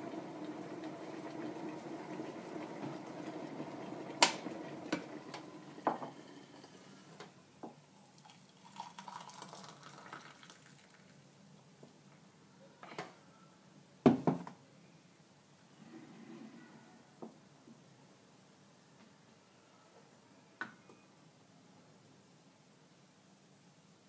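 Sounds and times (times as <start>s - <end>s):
hot water running: 0.0s - 7.2s, 8.1s - 11.2s.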